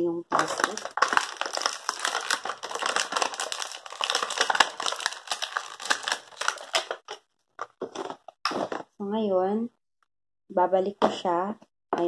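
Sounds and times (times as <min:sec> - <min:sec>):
plastic wrapping crinkling: 0:00.3 - 0:07.2.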